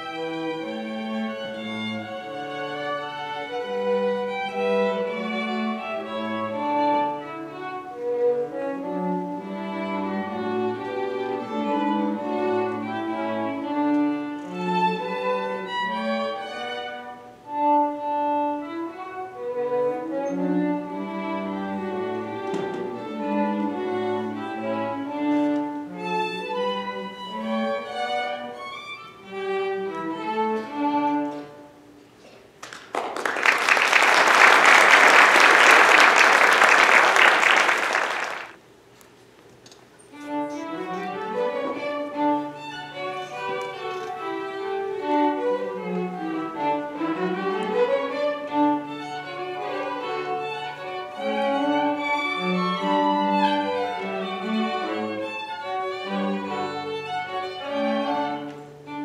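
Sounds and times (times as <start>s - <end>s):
violins and cello playing: 0.0s - 32.0s, 40.1s - 59.0s
audience applause: 32.6s - 38.6s.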